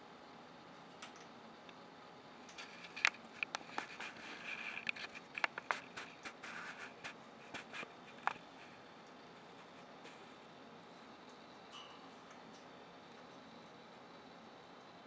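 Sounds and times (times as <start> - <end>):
sharp clicks and scrapes: 2.5 - 8.9.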